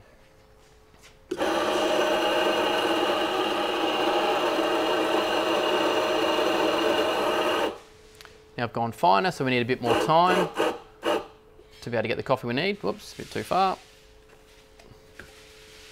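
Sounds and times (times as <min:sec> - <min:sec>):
coffee grinder whining: 0:01.3 - 0:07.8, 0:09.8 - 0:11.3.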